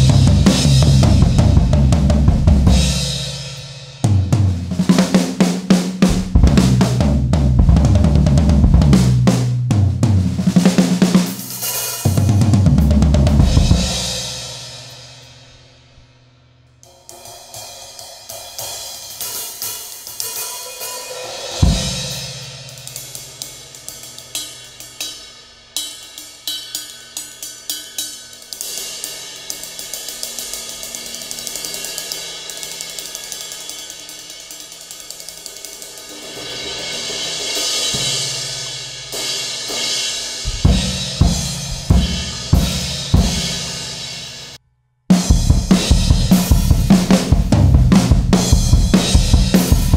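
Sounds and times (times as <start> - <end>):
loud full drum kit hits: 0.0 - 14.3, 21.5 - 22.4, 36.6 - 44.3, 45.1 - 49.9
light cymbal patterns: 10.4 - 49.9
cymbal wash: 16.8 - 44.6.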